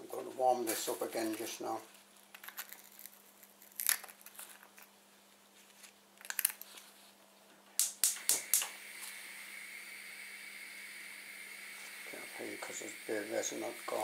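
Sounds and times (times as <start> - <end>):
gas igniter clicks: 7.8 - 9.2
gas burner hissing: 7.8 - 14.0.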